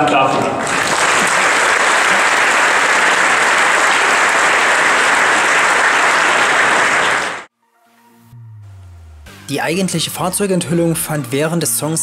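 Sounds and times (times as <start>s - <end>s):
large crowd applauding: 0.5s - 7.5s.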